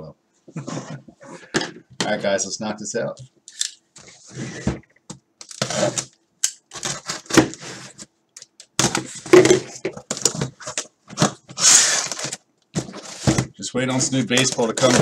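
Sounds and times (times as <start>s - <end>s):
cardboard tearing scrape: 5.6s - 6.1s, 6.7s - 8.0s, 10.2s - 13.5s
box cutter slicing tape: 11.5s - 12.4s.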